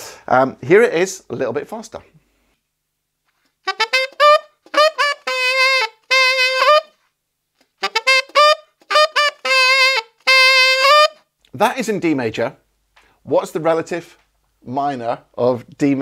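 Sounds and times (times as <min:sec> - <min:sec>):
tenor saxophone lick: 0:03.6 - 0:07.0, 0:07.6 - 0:11.3.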